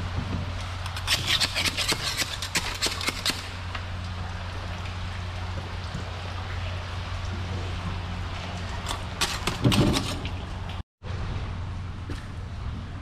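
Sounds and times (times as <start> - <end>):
tool scraping concrete: 0.9 - 3.5.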